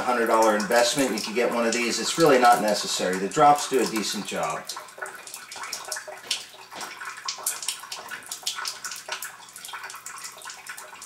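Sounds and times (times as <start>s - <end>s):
water splashing into sink: 0.0s - 11.0s.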